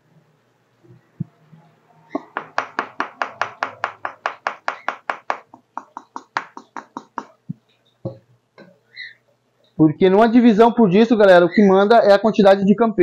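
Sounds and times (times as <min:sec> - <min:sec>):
knocking on wooden box: 0:02.2 - 0:07.4.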